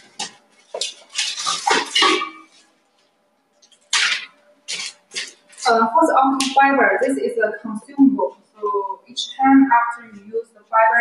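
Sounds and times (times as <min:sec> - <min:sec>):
plastic bag rustling: 0:00.0 - 0:03.0, 0:03.8 - 0:05.8.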